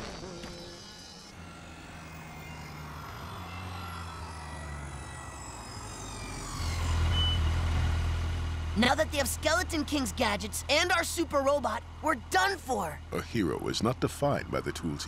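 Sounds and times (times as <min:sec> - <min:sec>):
high whine sliding downward: 0:00.0 - 0:07.8
cartoon motorcycle engine hum: 0:00.0 - 0:15.0.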